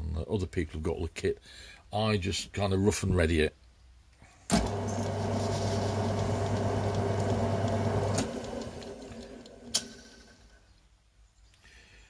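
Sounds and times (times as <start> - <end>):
lathe motor humming: 4.5 - 10.2
lathe switch click: 6.2 - 10.0.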